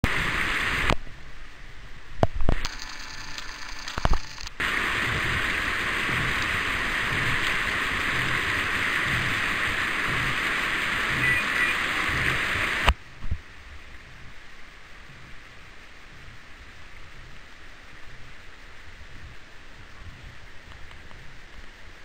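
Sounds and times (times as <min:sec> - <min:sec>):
river rapids rushing: 0:00.1 - 0:00.9, 0:02.7 - 0:12.9.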